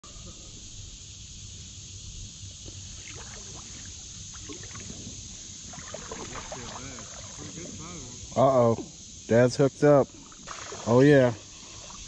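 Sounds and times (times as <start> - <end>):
creek high hiss: 0.0 - 12.0
creek low rumble: 2.4 - 12.0.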